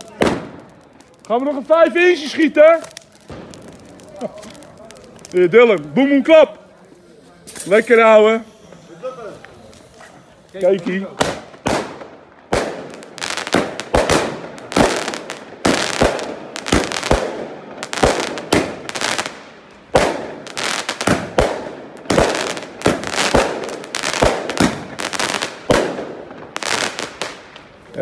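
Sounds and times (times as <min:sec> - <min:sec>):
firework cake firing shots: 0:00.0 - 0:00.9, 0:02.8 - 0:05.2, 0:11.0 - 0:27.5
firework crackling bursts: 0:00.0 - 0:28.0.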